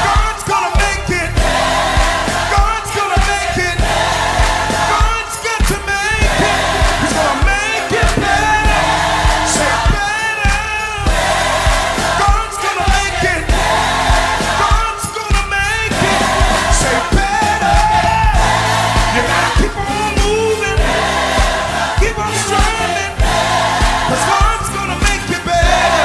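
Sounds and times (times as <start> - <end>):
band playing: 0.0 - 26.0
choir singing: 0.0 - 26.0
steady drumbeat: 0.0 - 26.0
man singing lead: 4.8 - 11.1, 14.6 - 18.4, 19.0 - 21.0.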